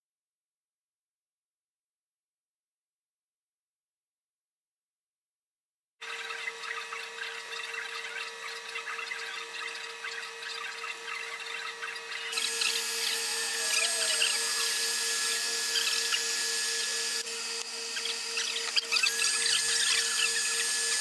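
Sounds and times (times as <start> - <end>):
printer motors ticking and whirring: 6.0 - 21.0
heat gun blowing: 12.3 - 21.0.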